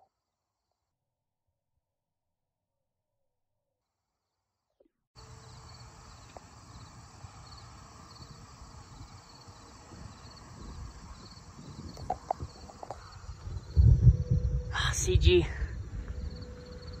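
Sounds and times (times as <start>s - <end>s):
insects chirping: 5.2s - 17.0s
wind buffeting microphone: 8.2s - 17.0s.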